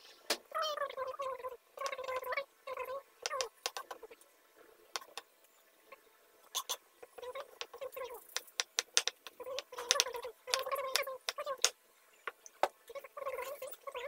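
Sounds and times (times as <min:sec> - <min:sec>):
knife chopping on wooden board: 0:08.4 - 0:11.7.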